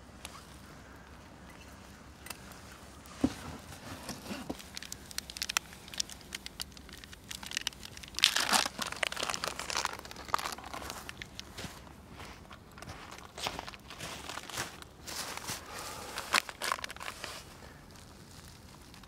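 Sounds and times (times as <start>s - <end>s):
coffee packet crinkling: 4.1s - 11.6s, 13.0s - 19.0s.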